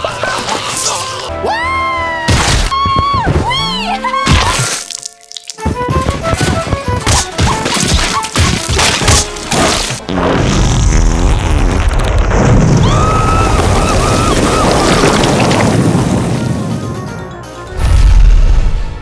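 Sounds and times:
cartoon music: 2.8s - 9.3s
crashes and whacks: 6.4s - 10.0s.

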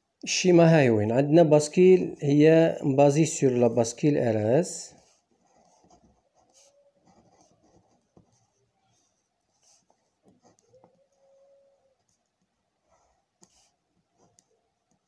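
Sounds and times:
pen scratching on paper: 5.0s - 11.2s, 12.0s - 14.6s.

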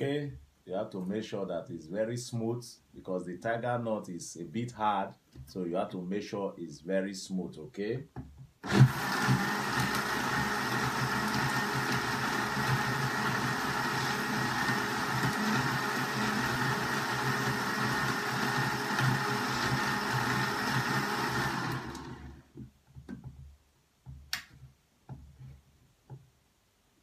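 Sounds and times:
blender grinding hard nuts: 8.6s - 22.4s
blender switch: 8.6s - 22.4s.

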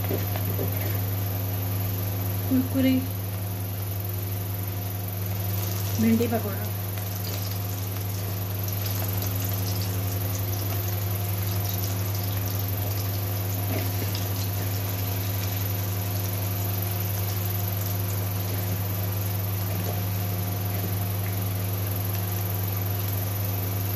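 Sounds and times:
oil sizzling and crackling: 4.8s - 22.6s.

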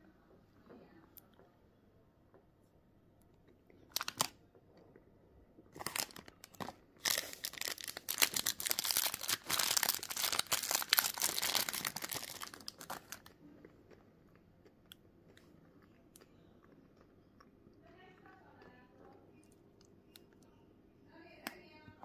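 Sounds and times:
plastic wrapper crinkling: 3.9s - 4.4s, 5.7s - 13.3s.

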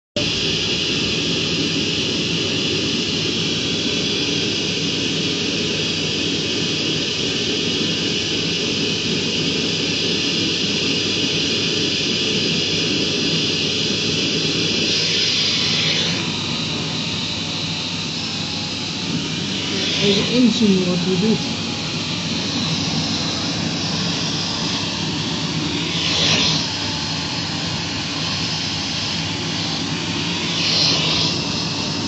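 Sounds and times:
electric motor whirring: 12.6s - 32.0s.

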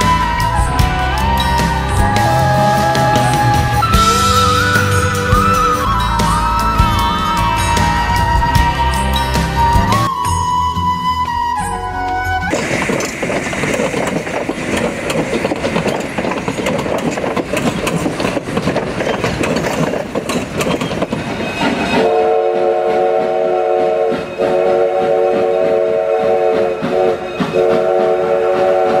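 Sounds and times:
steam locomotive chime whistle: 0.0s - 12.6s, 21.8s - 29.0s
train wheels clicking over rails: 12.5s - 29.0s.

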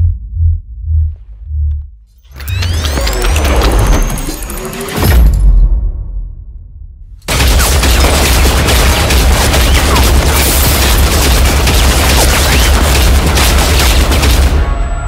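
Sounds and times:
heavy machine-gun fire: 7.3s - 14.9s.

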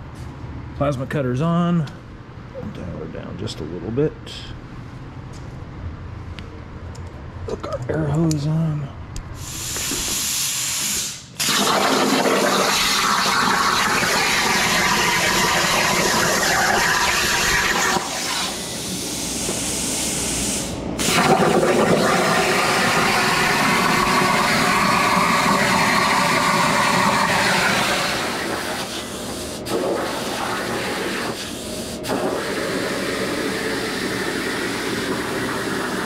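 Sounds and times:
plasma cutter hissing: 9.4s - 36.0s.

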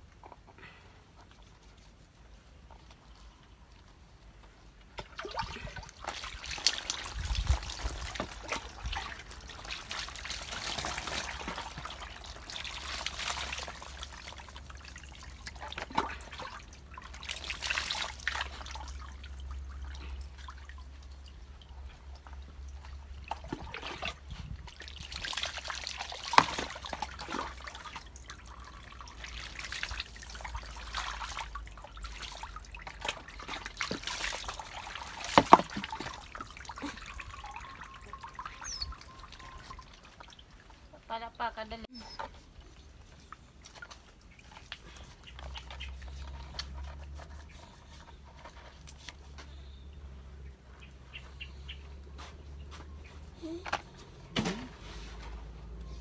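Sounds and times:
water pouring and splashing: 4.9s - 49.4s.

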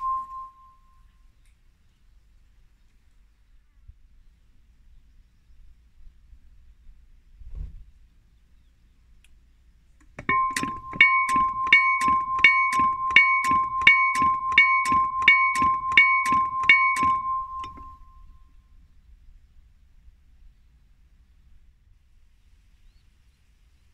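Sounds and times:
level-crossing bell ringing: 0.0s - 0.7s, 10.2s - 18.2s.

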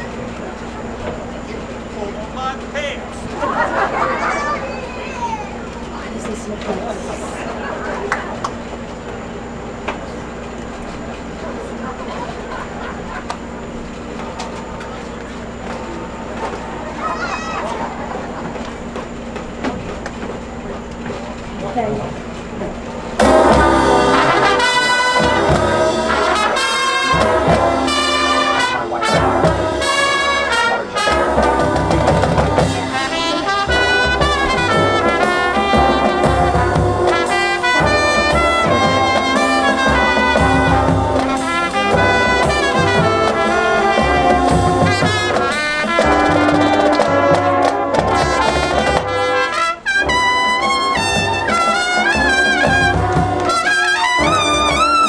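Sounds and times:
bass drums beating: 22.6s - 49.4s, 50.0s - 55.0s
bugles and brass horns playing: 23.2s - 55.0s.

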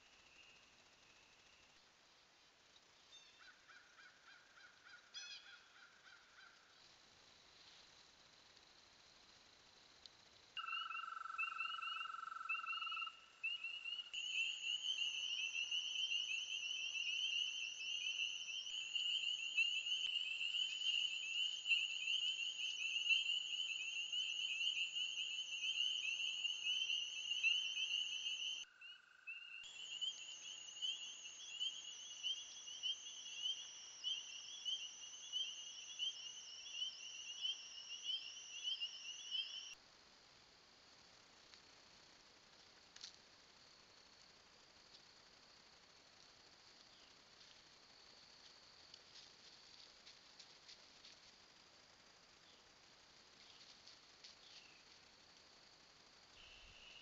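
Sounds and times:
frogs chorus peeping: 10.6s - 39.8s, 56.4s - 57.0s
low steady trill: 14.0s - 28.7s.

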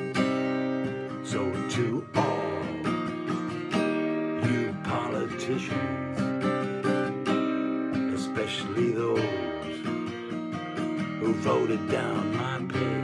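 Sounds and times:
acoustic guitar strumming chords: 0.0s - 13.0s.

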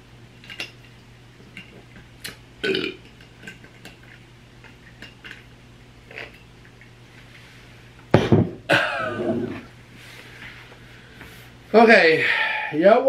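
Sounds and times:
low steady hum: 0.0s - 13.0s
person burping: 2.6s - 3.1s, 8.7s - 9.6s.

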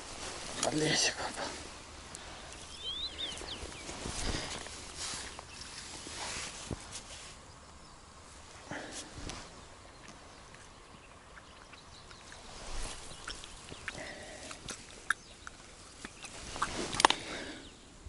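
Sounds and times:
hands handling fish: 12.6s - 17.6s.

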